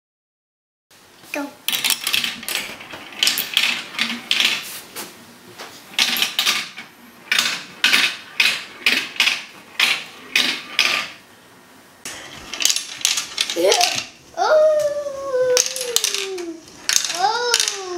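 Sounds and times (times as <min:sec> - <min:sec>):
marbles clattering through plastic run: 0:01.7 - 0:04.6, 0:06.0 - 0:11.2, 0:12.5 - 0:14.2, 0:15.5 - 0:17.9.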